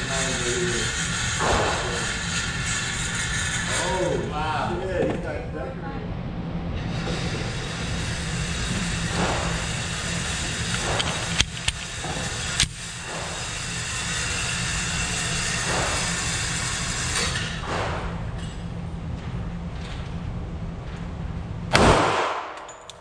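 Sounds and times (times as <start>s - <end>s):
air-handling rumble and hum: 0.0s - 23.0s
gunshot cracks: 21.7s - 22.7s.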